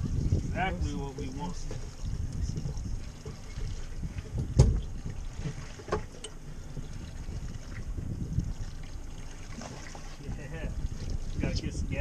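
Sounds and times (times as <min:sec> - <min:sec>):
water against boat hull: 0:00.0 - 0:12.0
wind on microphone: 0:00.0 - 0:12.0
knock on boat: 0:04.2 - 0:06.1.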